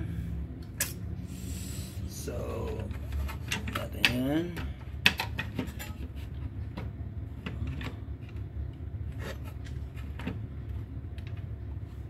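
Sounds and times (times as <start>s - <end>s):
steady low hum: 0.0s - 12.0s
tools clicking and tapping on workbench: 2.5s - 8.5s.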